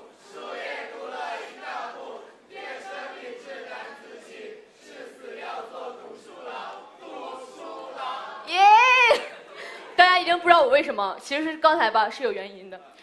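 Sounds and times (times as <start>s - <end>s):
audience chanting in unison: 0.0s - 8.5s.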